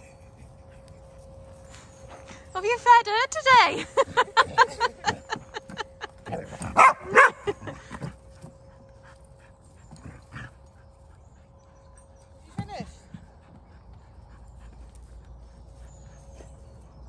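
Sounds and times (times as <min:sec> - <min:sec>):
dogs yapping and barking: 0:03.4 - 0:17.0.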